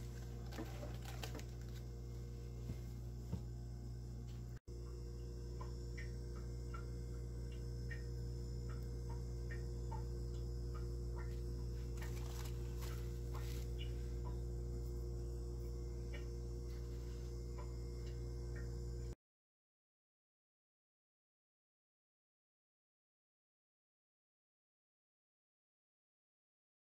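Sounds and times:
steady low hum: 0:00.0 - 0:19.2.

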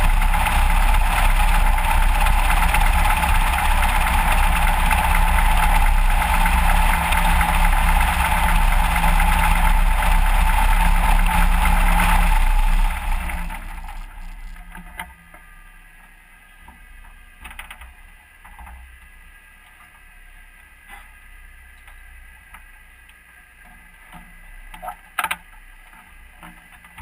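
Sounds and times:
propeller engine idling: 0:00.0 - 0:15.0
faint clicks and knocks: 0:21.7 - 0:27.0.

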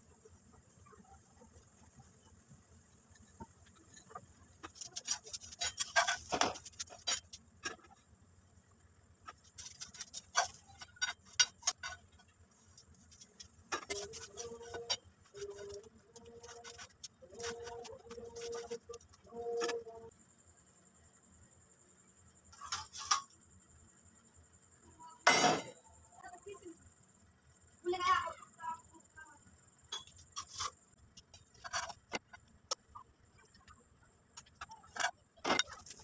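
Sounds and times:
metal spatula scraping a griddle: 0:03.1 - 0:08.0, 0:09.2 - 0:20.0, 0:22.6 - 0:23.3, 0:29.9 - 0:32.4.

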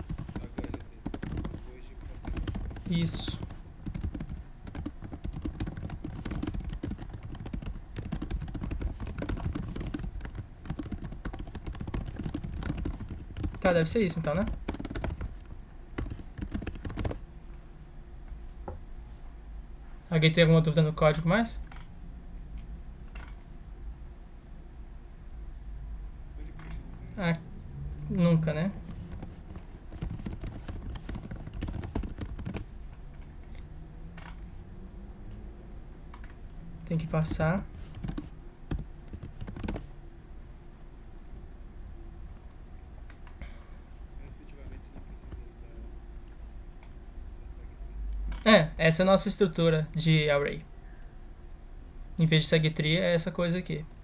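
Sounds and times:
rapid keyboard typing: 0:00.0 - 0:17.2, 0:27.9 - 0:32.8, 0:36.1 - 0:39.9.

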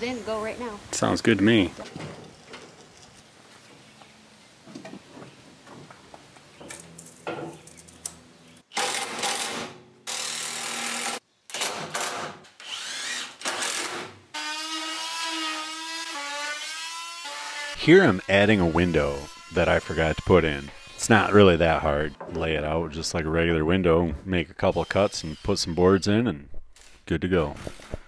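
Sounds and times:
power drill motor: 0:12.6 - 0:13.8.

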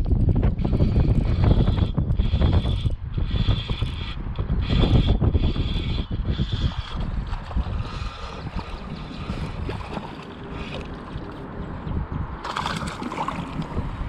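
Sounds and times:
wind on microphone: 0:00.0 - 0:14.0
moving river water: 0:03.3 - 0:14.0
fish splash: 0:12.4 - 0:13.7.

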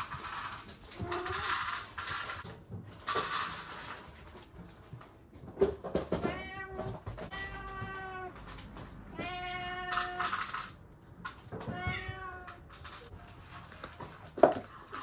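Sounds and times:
cats meowing: 0:05.9 - 0:10.8, 0:11.4 - 0:13.0.

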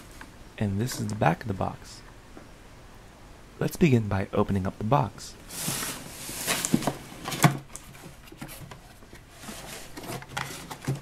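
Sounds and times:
cardboard rustling and scraping: 0:05.5 - 0:11.0.

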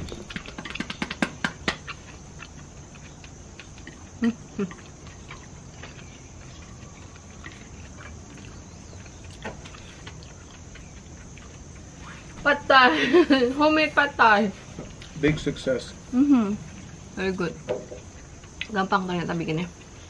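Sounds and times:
chewing: 0:00.0 - 0:12.4, 0:18.0 - 0:20.0
high insect chirr: 0:00.0 - 0:20.0.

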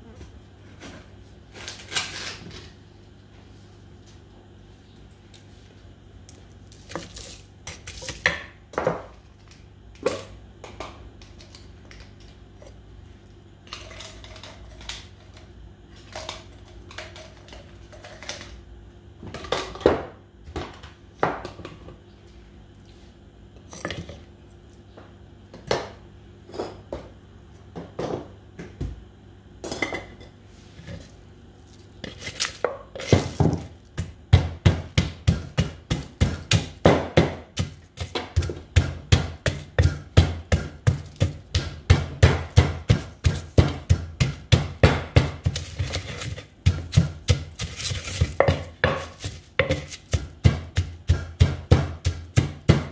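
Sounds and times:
wooden pestle pounding in mortar: 0:32.9 - 0:52.9.

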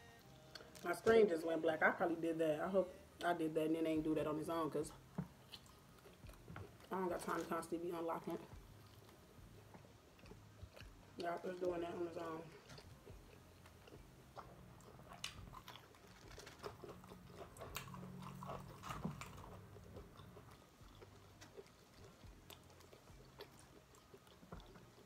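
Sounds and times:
chewing fried chicken crunching: 0:05.4 - 0:25.0.

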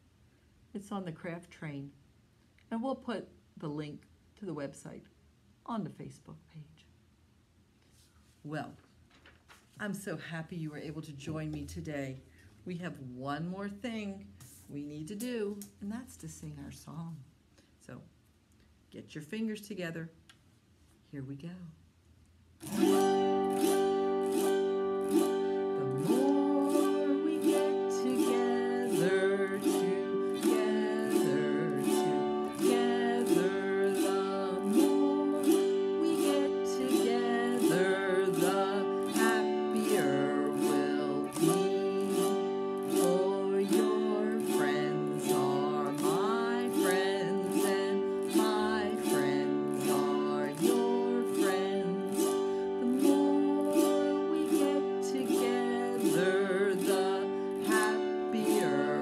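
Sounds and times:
autoharp strummed: 0:22.6 - 0:59.0
woman singing: 0:22.7 - 0:59.0.

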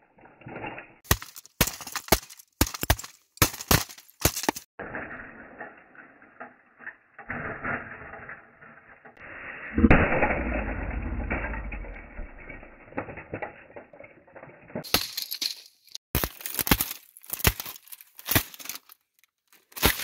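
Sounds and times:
plastic cracking and keys clattering: 0:14.8 - 0:20.0.

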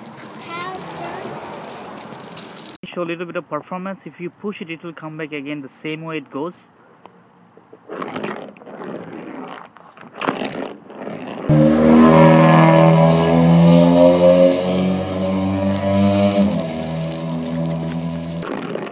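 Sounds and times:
toy wheels rolling on concrete: 0:00.0 - 0:02.8, 0:07.8 - 0:12.3, 0:16.2 - 0:18.9.

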